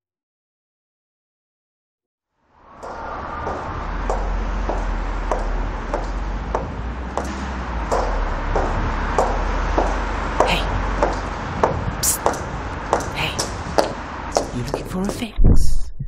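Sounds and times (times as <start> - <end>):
steady low hum: 2.7 - 15.9
footsteps on hard floor: 2.8 - 15.3.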